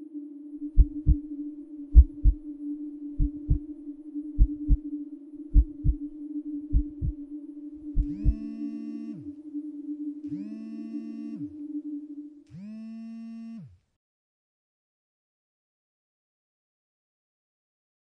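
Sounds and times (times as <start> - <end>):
low droning tone: 0.0 - 13.6
heartbeat thumps: 0.8 - 1.2, 1.9 - 2.4, 3.2 - 3.7, 4.4 - 4.8, 5.5 - 7.2, 7.9 - 8.5.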